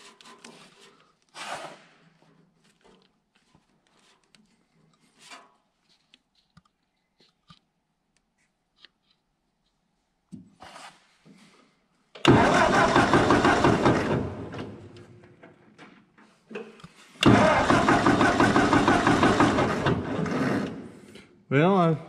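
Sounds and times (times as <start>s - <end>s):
tractor starter cranking engine: 12.2s - 15.7s, 17.1s - 21.0s.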